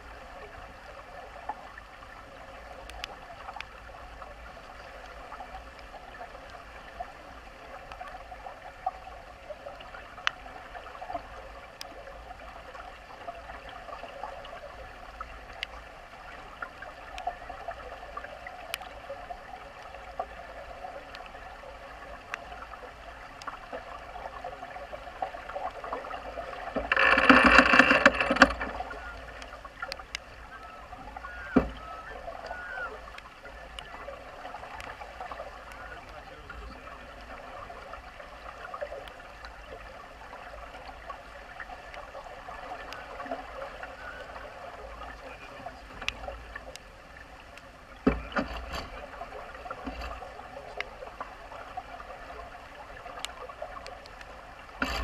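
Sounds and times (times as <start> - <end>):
water rushing along a hull: 0.0 - 55.0
small ticks: 2.8 - 6.9, 9.6 - 12.5, 13.7 - 21.3, 22.1 - 23.8, 26.7 - 36.8.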